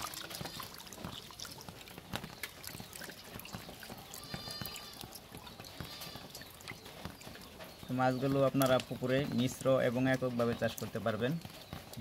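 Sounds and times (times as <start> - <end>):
water splashing in a steel bowl: 0.0 - 7.5
water trickling: 0.0 - 12.0.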